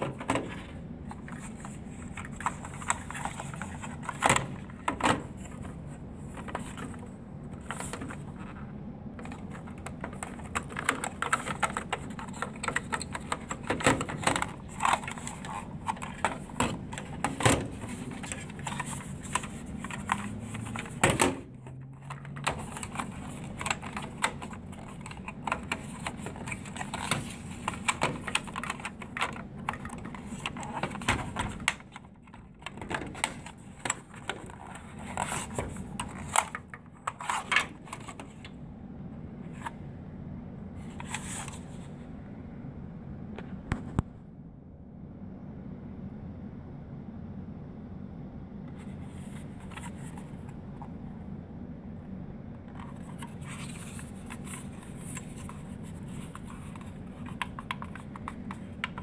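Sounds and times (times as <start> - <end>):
plastic parts clicking and rattling: 0.0 - 8.6, 9.2 - 38.5, 52.7 - 59.0.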